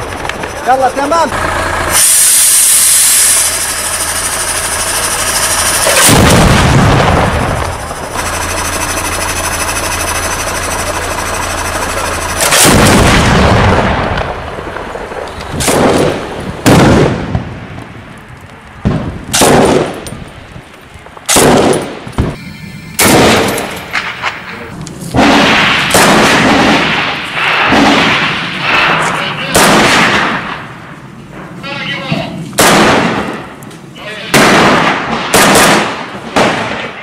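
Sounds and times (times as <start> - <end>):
steady drone: 0.0 - 16.4, 22.2 - 25.9
gunshots with long echo: 3.1 - 18.0, 18.8 - 20.3, 21.3 - 31.6, 32.5 - 33.6, 34.2 - 37.0.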